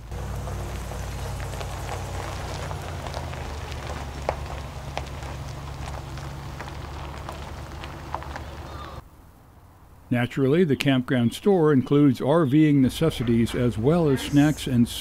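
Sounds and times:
truck engine humming: 0.0s - 9.0s, 12.8s - 15.0s
tyres crunching on gravel: 0.0s - 9.0s.

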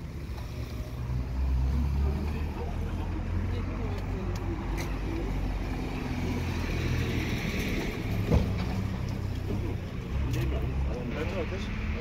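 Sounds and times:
traffic engines rumbling: 0.0s - 12.0s.

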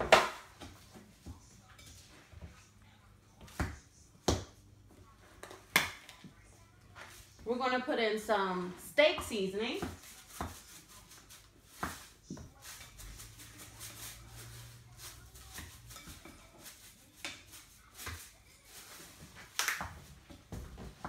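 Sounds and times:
spoon stirring meat mix: 8.8s - 19.0s.

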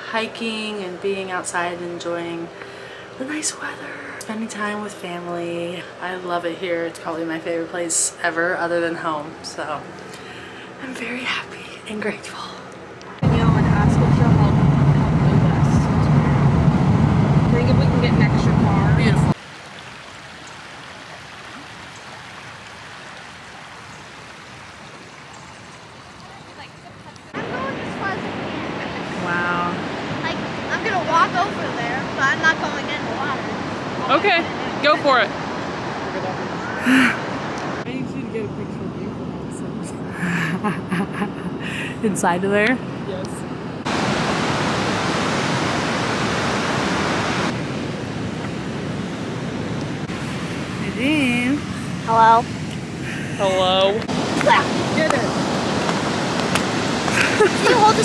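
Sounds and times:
ocean surf breaking: 13.2s - 19.5s, 26.2s - 39.8s, 42.5s - 58.0s
creek water flowing over stones: 19.3s - 28.1s, 54.0s - 58.0s.

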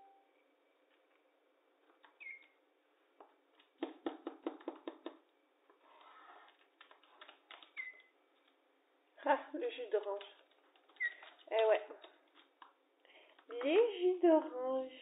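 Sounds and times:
parrot chirp: 2.1s - 2.6s, 7.6s - 8.2s, 10.9s - 11.4s
fingers tapping on a table: 3.8s - 5.2s
soft rustling and clicks: 5.7s - 8.7s, 9.7s - 13.9s.

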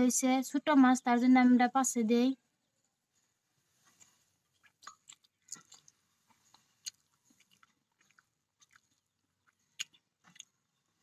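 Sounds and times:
fingers squelching wet food: 4.0s - 10.9s.

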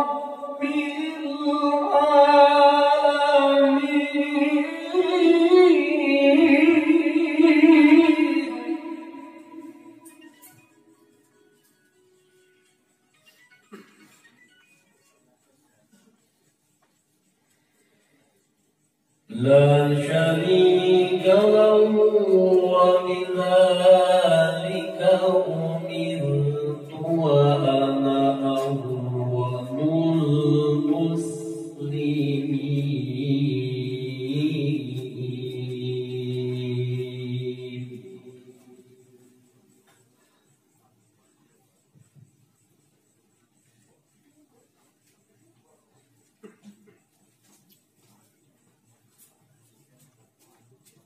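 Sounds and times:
man reciting melodically: 0.0s - 10.3s, 19.1s - 39.4s
man chanting into a microphone: 19.3s - 38.6s.

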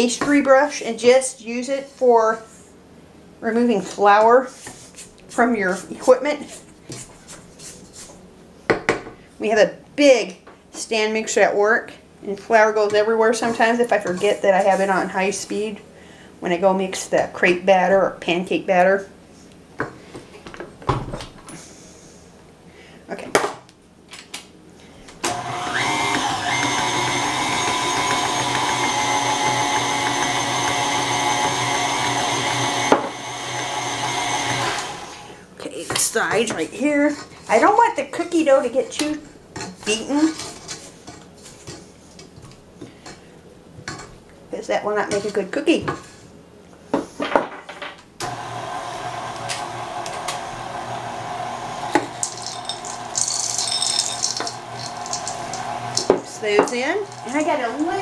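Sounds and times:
stand mixer motor whine: 25.3s - 35.3s, 48.2s - 58.0s.

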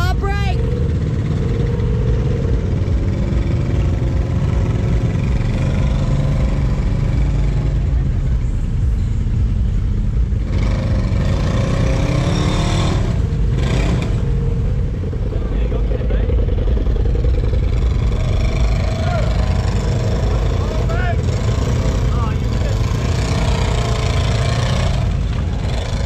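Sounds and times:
utv engine revving hard: 0.6s - 7.7s, 10.4s - 14.7s, 17.0s - 26.0s
tyres churning through mud: 10.5s - 26.0s.

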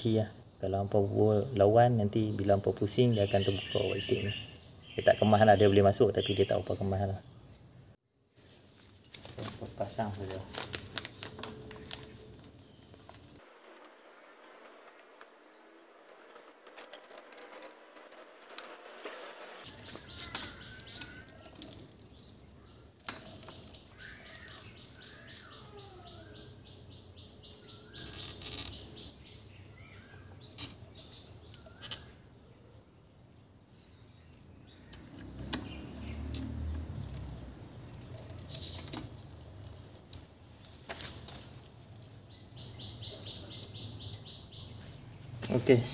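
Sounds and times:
birds chirping: 0.0s - 7.8s, 9.4s - 45.9s.

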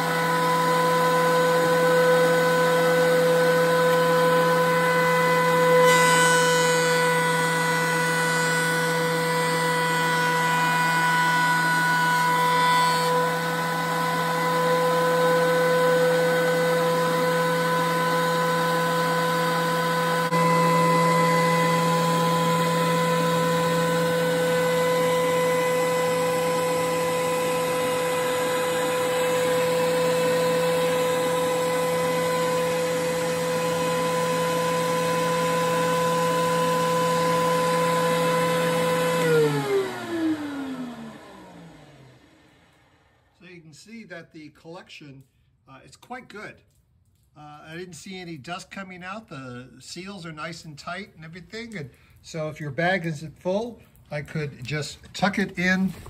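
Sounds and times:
thickness planer whining: 0.0s - 43.7s.

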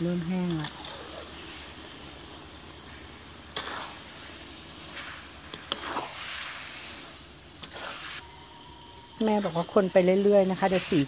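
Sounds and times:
spatula scraping a wok: 0.5s - 2.1s, 2.8s - 8.2s, 9.3s - 11.0s.

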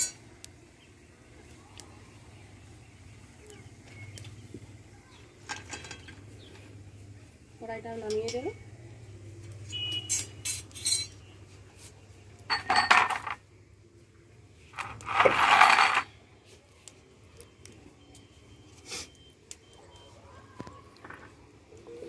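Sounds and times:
wok scraping on concrete floor: 9.6s - 13.4s, 14.7s - 16.2s
metal wok clinking: 10.0s - 11.2s.

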